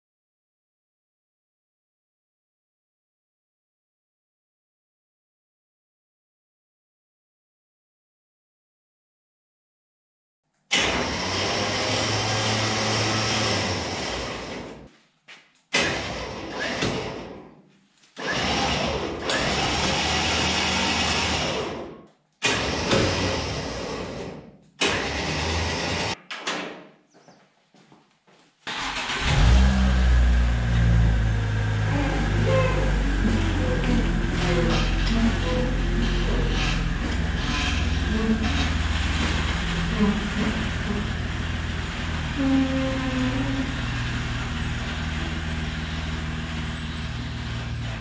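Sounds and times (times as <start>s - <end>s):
electric winch motor whining: 10.7s - 14.8s, 15.9s - 17.3s, 18.2s - 26.2s, 28.7s - 48.0s
engine deep rumble: 28.8s - 48.0s.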